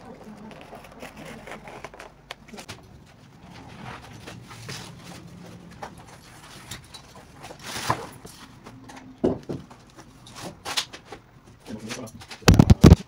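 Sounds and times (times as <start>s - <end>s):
cardboard scraping and rustling: 0.0s - 8.7s.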